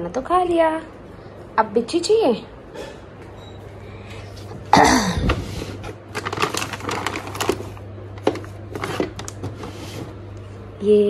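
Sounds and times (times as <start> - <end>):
plastic packets crinkling: 6.1 - 9.4
plastic drawer scraping open: 6.2 - 10.1.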